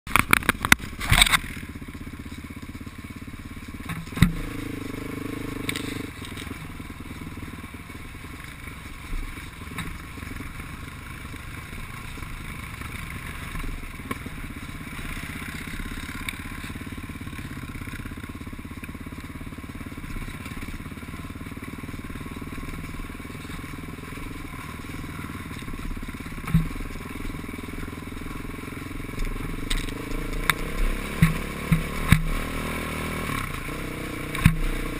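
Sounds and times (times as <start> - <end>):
engine running steadily: 0.1 - 34.9
knocks and clatter over rough ground: 0.1 - 34.9.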